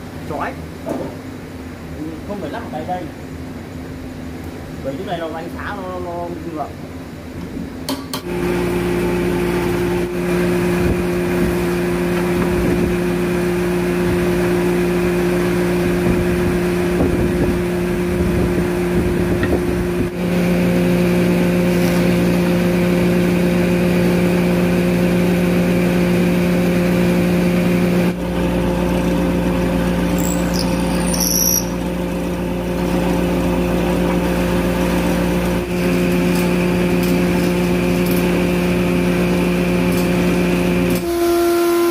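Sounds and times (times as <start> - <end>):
boring machine motor humming: 28.2 - 36.0
brief high squeal: 30.2 - 31.8.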